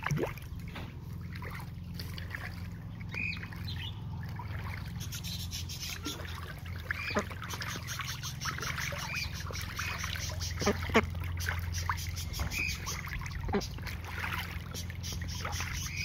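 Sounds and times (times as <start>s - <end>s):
ducks splashing in water: 0.0s - 16.0s
steady low rumble: 0.0s - 16.0s
water sloshing and trickling: 0.0s - 16.0s
bird chirps: 3.0s - 4.1s, 4.8s - 13.7s, 14.7s - 16.0s.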